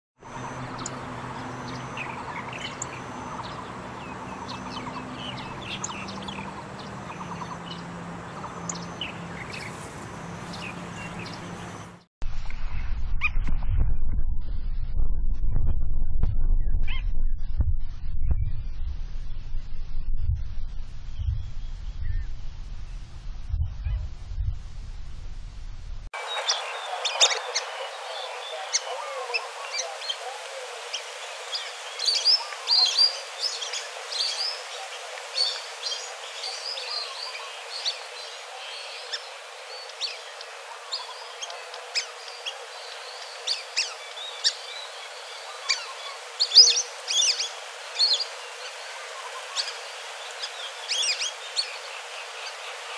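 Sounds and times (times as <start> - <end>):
birds chirping and calling: 0.3 - 12.0, 26.2 - 52.9
steady hiss: 24.7 - 52.9.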